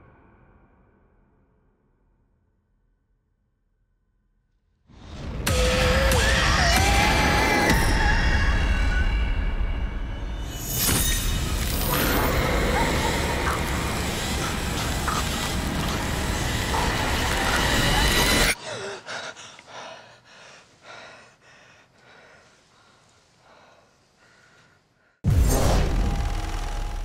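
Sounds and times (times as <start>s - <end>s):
horror sound effect: 5.0s - 18.6s.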